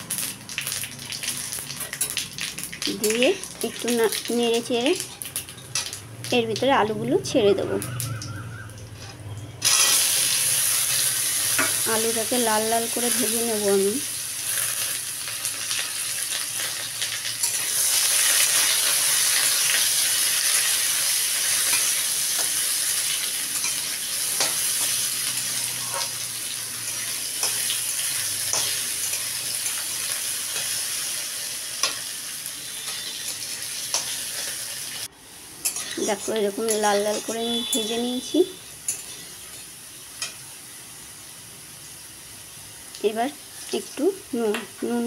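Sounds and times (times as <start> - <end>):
potatoes sizzling in oil: 0.0 - 8.2, 9.6 - 45.0
metal spatula scraping pan: 8.9 - 10.2, 32.6 - 34.5, 35.6 - 36.1, 38.9 - 39.6.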